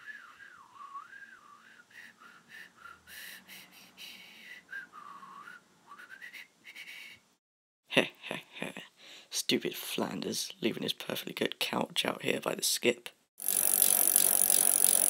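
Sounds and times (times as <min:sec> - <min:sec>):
person whistling a tune: 0:00.0 - 0:03.1, 0:04.5 - 0:07.1.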